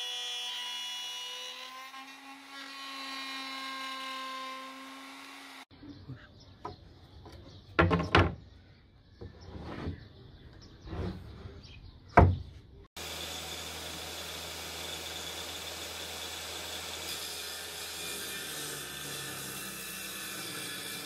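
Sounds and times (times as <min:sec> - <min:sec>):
knocks and scrapes: 0:06.6 - 0:08.4, 0:09.2 - 0:12.9.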